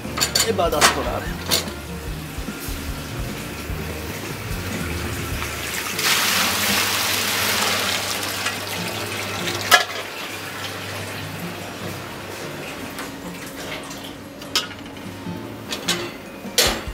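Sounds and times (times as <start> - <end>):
sizzling in a frying pan: 1.7 - 14.0.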